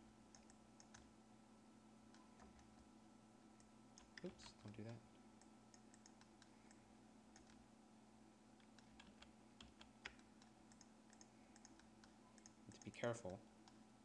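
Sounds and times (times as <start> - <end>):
keyboard keys clicking: 8.6 - 13.4.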